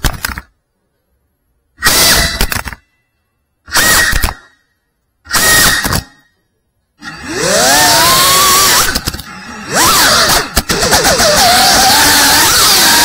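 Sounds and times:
drone motors whining: 0:03.6 - 0:13.0.

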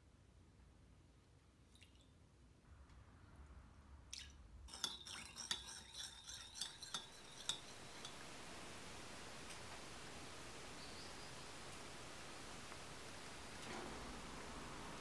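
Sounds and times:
spoon clinking in ceramic bowl: 0:04.7 - 0:08.2.

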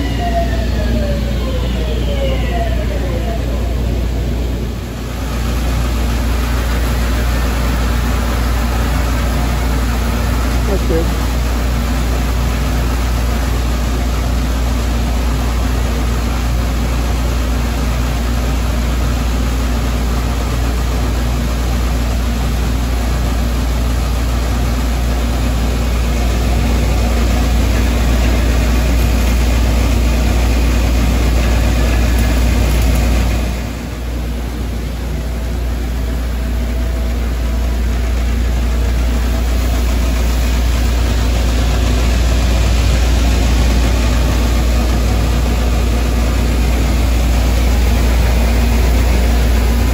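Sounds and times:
low machinery hum: 0:00.0 - 0:49.9.

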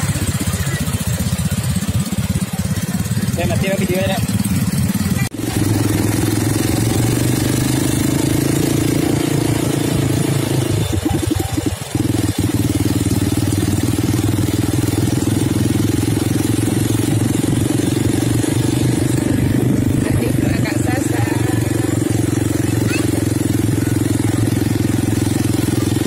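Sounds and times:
small engine idling: 0:00.0 - 0:26.0.

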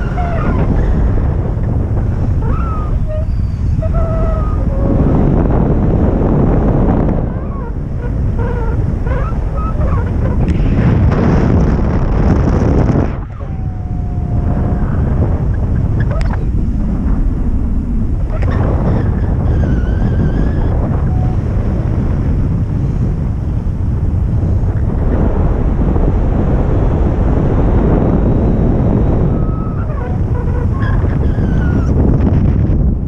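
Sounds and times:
wind buffeting microphone: 0:00.0 - 0:33.0
faint whistled calls: 0:02.4 - 0:04.6.

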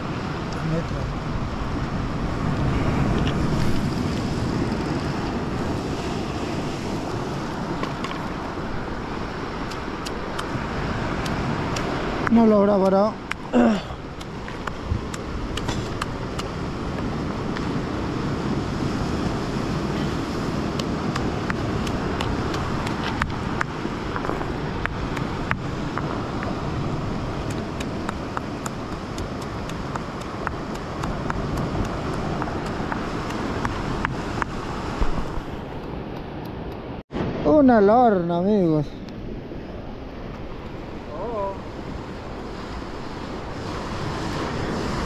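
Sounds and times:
surf breaking on rocks: 0:00.0 - 0:35.8
wind on microphone: 0:00.0 - 0:45.0.

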